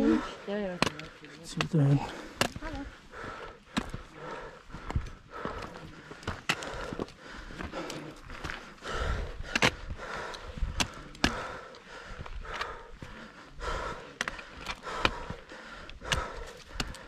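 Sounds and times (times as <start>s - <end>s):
footsteps crunching on rocks: 4.7s - 8.8s.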